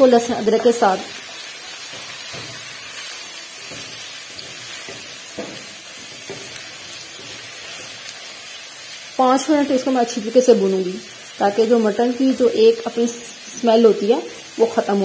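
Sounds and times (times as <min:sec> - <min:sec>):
meat sizzling in oil: 0:00.0 - 0:15.0
spatula scraping pan: 0:01.2 - 0:08.4.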